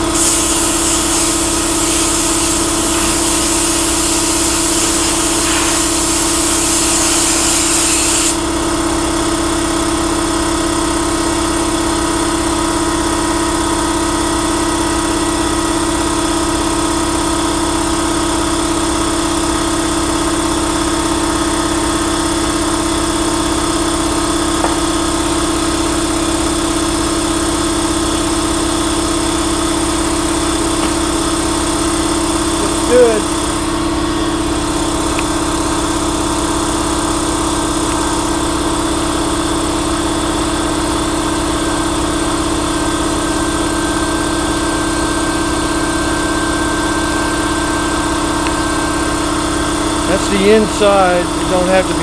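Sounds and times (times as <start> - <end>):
sandblaster hissing: 0.0 - 8.4.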